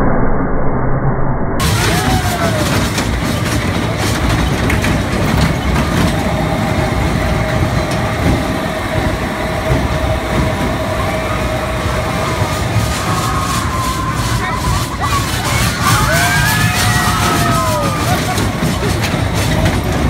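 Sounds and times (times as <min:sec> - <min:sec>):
roller coaster wheels rumbling on rail: 0:01.6 - 0:20.0.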